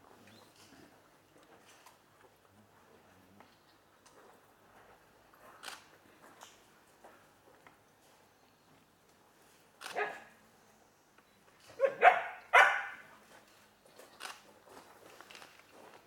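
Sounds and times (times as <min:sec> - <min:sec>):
dog barking: 0:09.9 - 0:10.3, 0:11.8 - 0:13.0.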